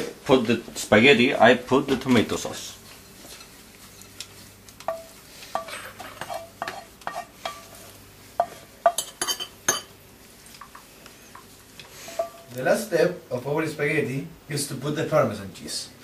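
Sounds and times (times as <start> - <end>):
wooden spoon knocking frying pan: 4.8 - 7.6.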